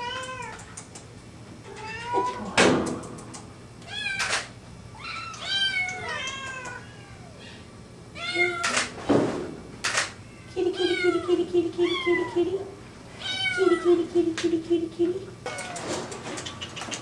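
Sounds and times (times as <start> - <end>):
kittens meowing: 4.9 - 8.9.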